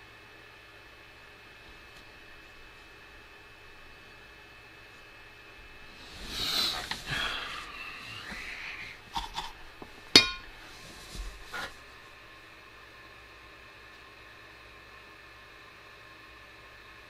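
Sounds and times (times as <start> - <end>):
breathy exhale: 5.9 - 9.2
soldering iron clinking down: 10.1 - 10.6.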